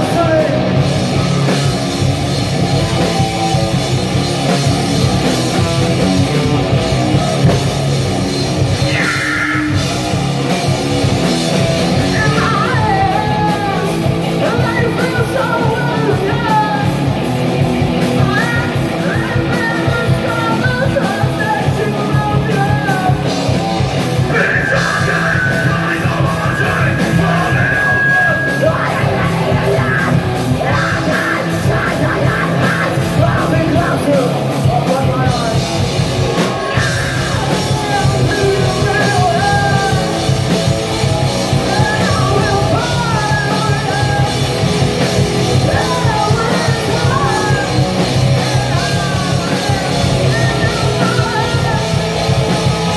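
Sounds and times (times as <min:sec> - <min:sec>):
heavy rock band playing: 0:00.0 - 0:52.9
singer yelling and singing: 0:00.0 - 0:52.9.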